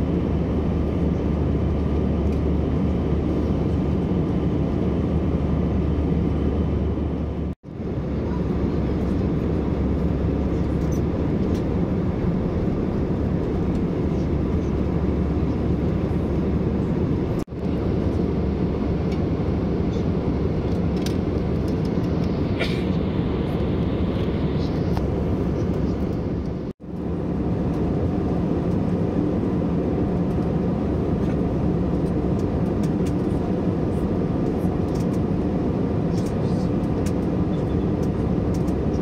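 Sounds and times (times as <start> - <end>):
airplane cabin engine rush: 0.0 - 39.0.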